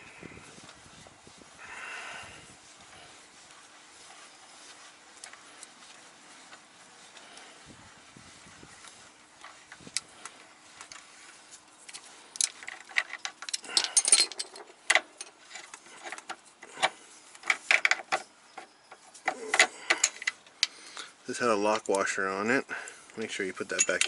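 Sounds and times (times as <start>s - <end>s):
metal fasteners clinking: 8.8s - 20.8s, 23.0s - 24.0s.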